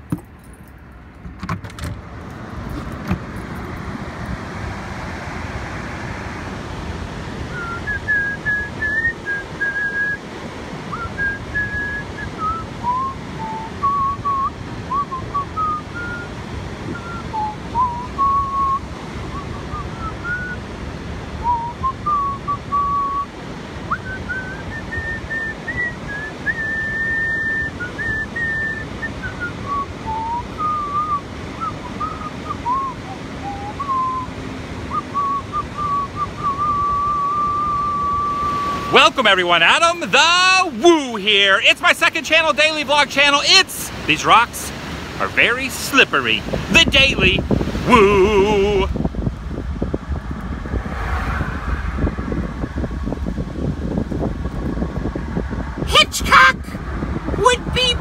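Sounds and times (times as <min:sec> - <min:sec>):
wind: 0:00.0 - 0:58.0
surf: 0:01.3 - 0:58.0
person whistling a tune: 0:07.5 - 0:10.2, 0:10.9 - 0:16.3, 0:16.9 - 0:20.6, 0:21.4 - 0:23.3, 0:23.9 - 0:34.3, 0:34.9 - 0:39.0.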